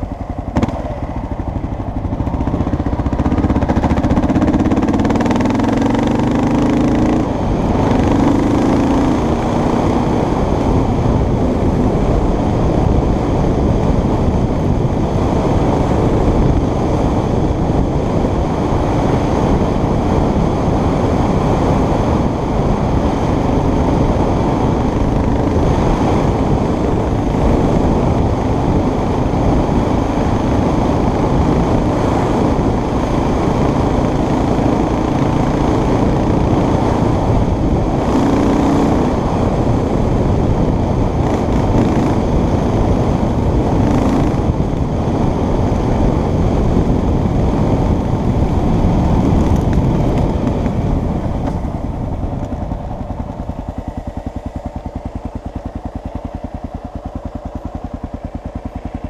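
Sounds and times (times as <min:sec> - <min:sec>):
engine idling: 0:00.0 - 0:09.7, 0:22.2 - 0:59.0
vehicle engine: 0:00.0 - 0:59.0
wind noise: 0:00.0 - 0:59.0.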